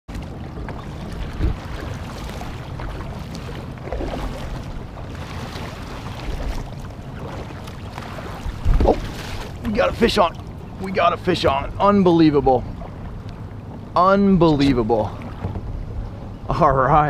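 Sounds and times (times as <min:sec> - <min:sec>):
water lapping against hull: 0:00.1 - 0:17.0
wind on microphone: 0:00.8 - 0:10.8.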